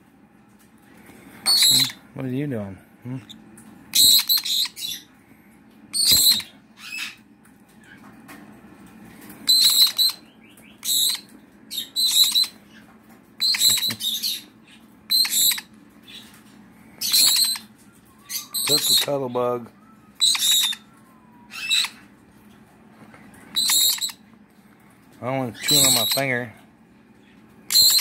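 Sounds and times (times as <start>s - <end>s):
parrots chirping: 1.4s - 2.0s, 3.2s - 5.1s, 5.9s - 7.2s, 9.4s - 16.4s, 17.0s - 19.4s, 20.2s - 20.9s, 21.5s - 22.1s, 23.4s - 24.2s, 25.5s - 26.5s, 27.7s - 28.0s.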